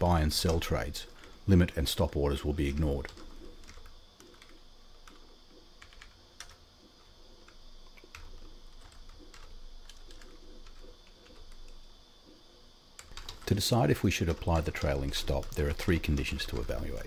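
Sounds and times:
typing on computer keyboard: 2.6s - 5.2s, 5.8s - 6.6s, 7.4s - 11.9s, 13.0s - 13.6s.

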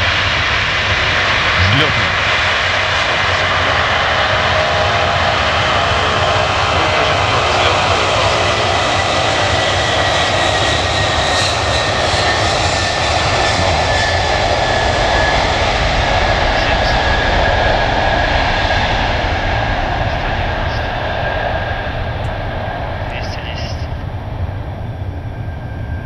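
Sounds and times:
jet engines at takeoff thrust: 0.0s - 26.0s.

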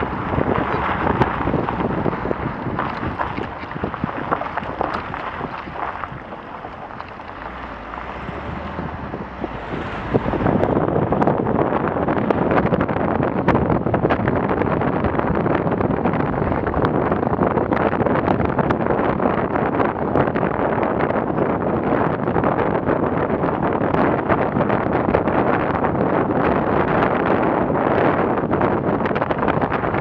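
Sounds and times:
tyres on gravel track: 0.0s - 30.0s
wind buffeting microphone: 0.0s - 30.0s.

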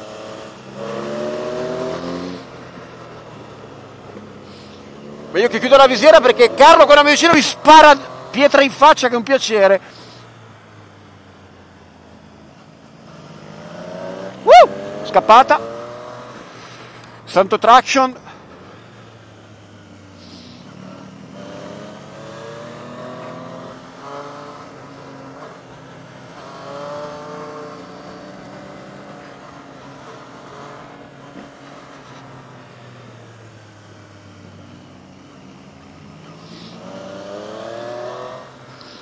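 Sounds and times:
motorcycle engine revving: 0.0s - 8.8s, 12.8s - 16.9s, 20.2s - 35.2s, 35.8s - 39.0s.

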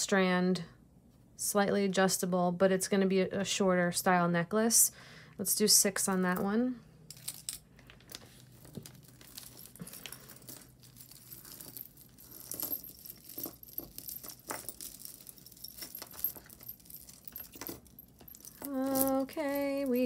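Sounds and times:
jewelry chains and beads clinking: 6.0s - 20.0s.

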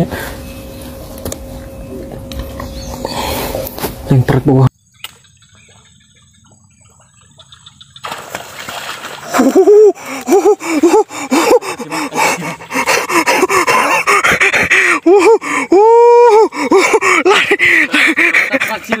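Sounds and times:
person groaning: 9.7s - 17.6s.

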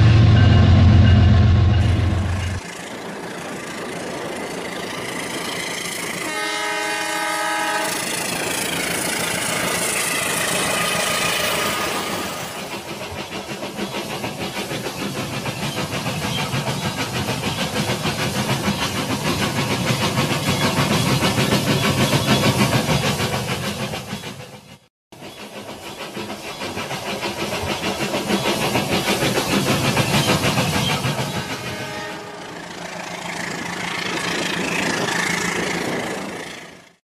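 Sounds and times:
toy train horn: 6.2s - 8.2s, 31.4s - 32.6s.

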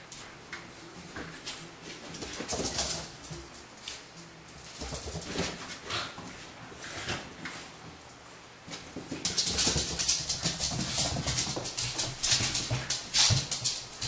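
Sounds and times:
dogs rustling and scratching: 0.1s - 8.0s, 8.6s - 14.0s.

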